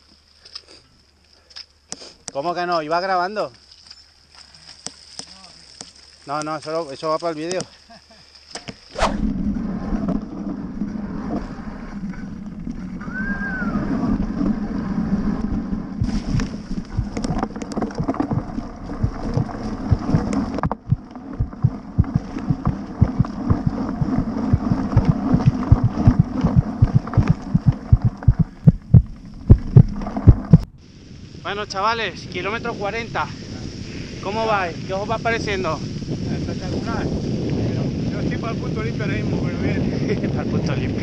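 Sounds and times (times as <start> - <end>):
wind and tyre noise: 8.7 - 41.0
short squeal: 13.0 - 14.0
bike knocks and rattles: 16.0 - 30.6.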